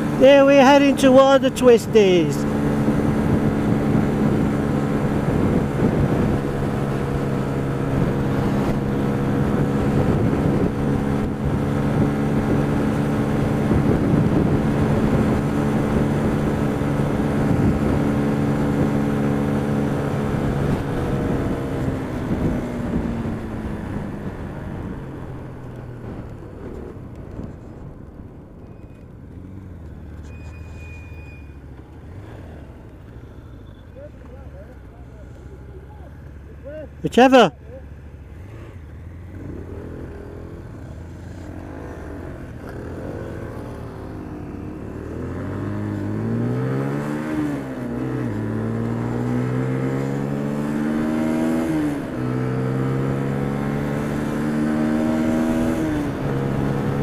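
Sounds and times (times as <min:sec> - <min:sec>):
wind rushing past helmet: 0:09.9 - 0:16.7.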